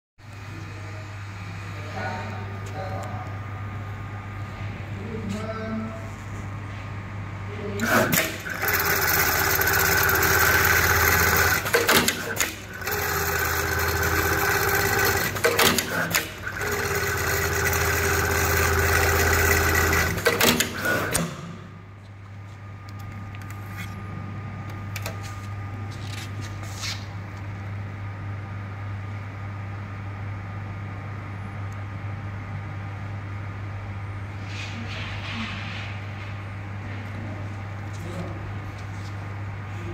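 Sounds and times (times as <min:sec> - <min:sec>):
steady low hum: 0:00.2 - 0:39.9
sewing machine stitching: 0:07.8 - 0:21.4.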